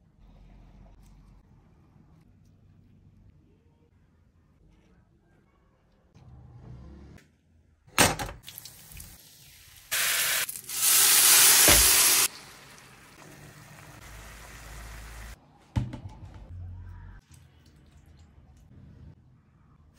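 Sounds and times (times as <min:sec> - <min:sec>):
sauce sizzling in a pan: 0:08.6 - 0:15.4.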